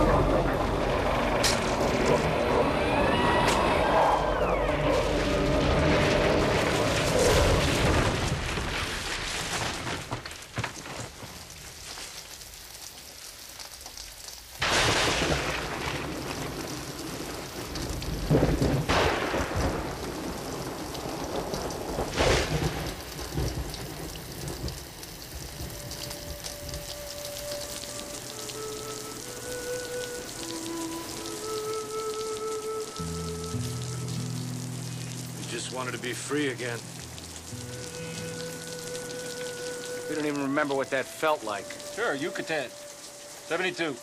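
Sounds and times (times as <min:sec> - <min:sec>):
thunder cracks rumbling: 0:00.0 - 0:10.1, 0:14.6 - 0:32.0
heavy rain: 0:00.0 - 0:44.0.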